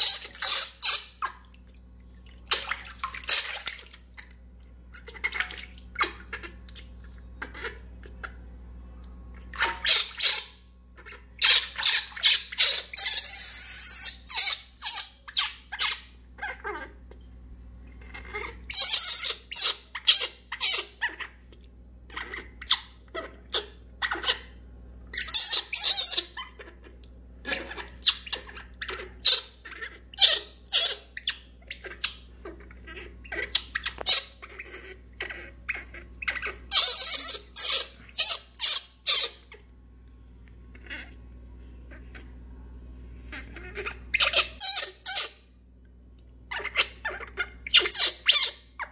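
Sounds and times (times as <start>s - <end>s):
baby monkey screeching squeals: 0.0s - 1.4s, 2.5s - 3.8s, 9.5s - 17.0s, 18.0s - 21.5s, 22.1s - 39.6s, 40.7s - 41.2s, 43.2s - 45.5s, 46.5s - 48.9s.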